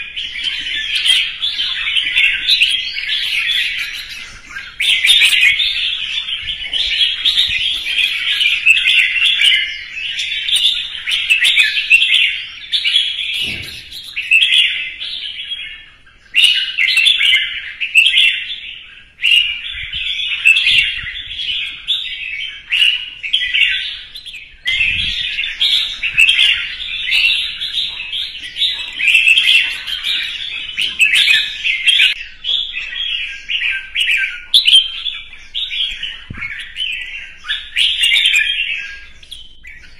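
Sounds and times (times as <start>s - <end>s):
bird song with warbled whistles: 0.0s - 39.9s.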